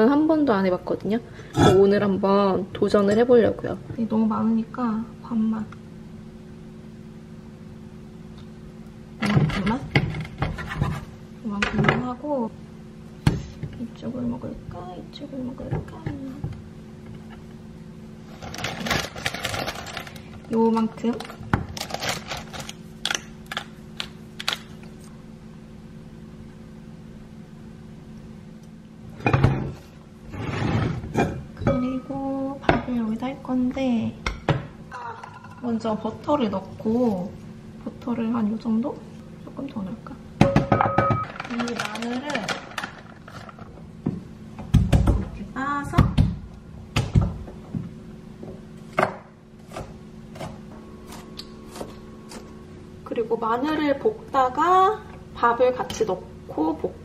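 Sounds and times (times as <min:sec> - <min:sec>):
steady low hum: 0:00.0 - 0:57.0
heavy pot knocking on cooktop: 0:40.4 - 0:41.2.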